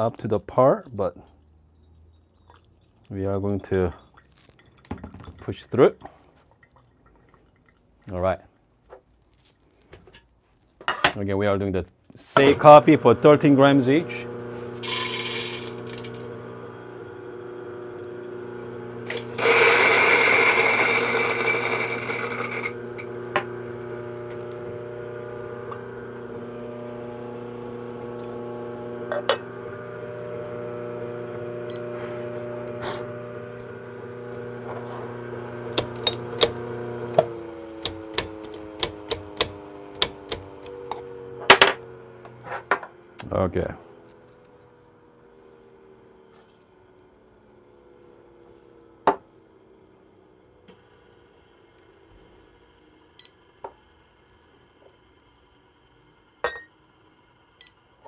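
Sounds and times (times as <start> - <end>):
coffee beans dropping: 14.8 - 16.2.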